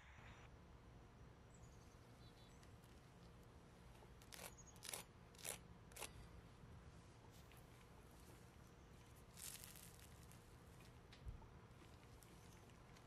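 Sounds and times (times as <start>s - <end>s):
fork crunching fried crust: 9.3s - 10.4s.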